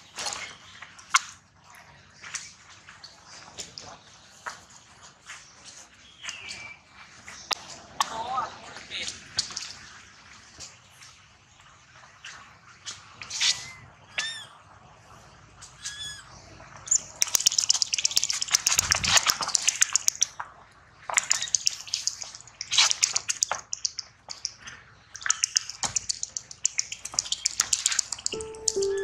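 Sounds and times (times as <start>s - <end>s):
macaques screeching: 13.4s - 14.5s, 15.8s - 16.3s.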